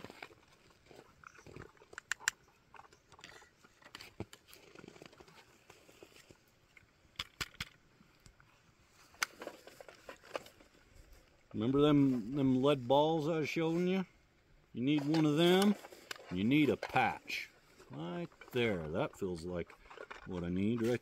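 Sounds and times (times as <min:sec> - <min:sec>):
rifle handling clicks and crunches: 0:00.0 - 0:11.6, 0:14.8 - 0:21.0.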